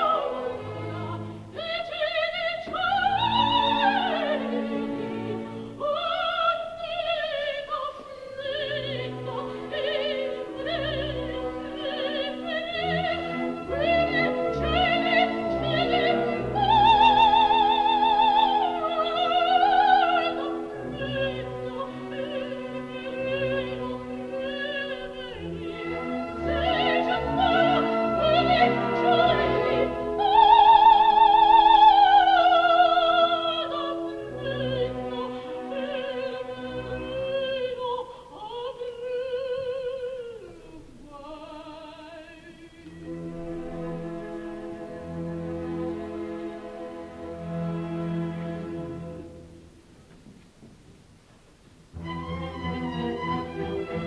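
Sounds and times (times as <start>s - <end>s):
operatic soprano singing: 0.0s - 49.3s
orchestra playing: 9.0s - 31.9s, 52.0s - 54.0s.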